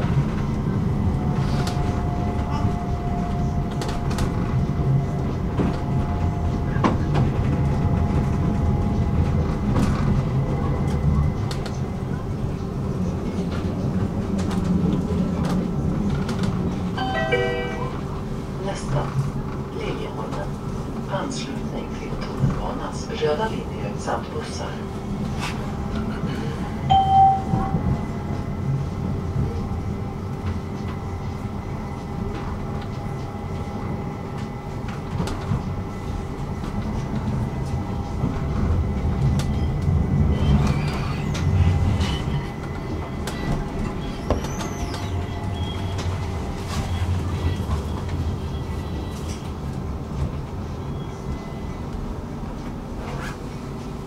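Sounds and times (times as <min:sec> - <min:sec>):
tram rumbling on rails: 0:00.0 - 0:54.0
short beep: 0:26.9 - 0:27.7
faint high squeal: 0:43.3 - 0:46.1.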